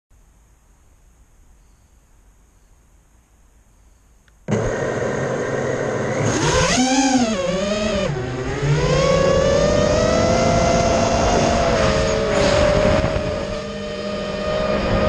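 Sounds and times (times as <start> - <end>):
quadcopter motors whining: 4.5 - 15.0.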